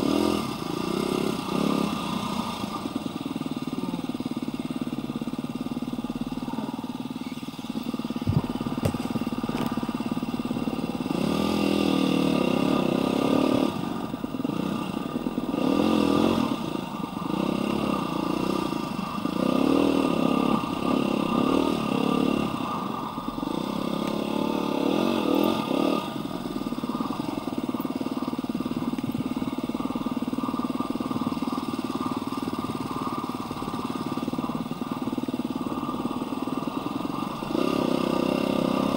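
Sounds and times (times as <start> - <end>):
dirt bike engine revving: 0.0 - 3.2, 8.1 - 38.9.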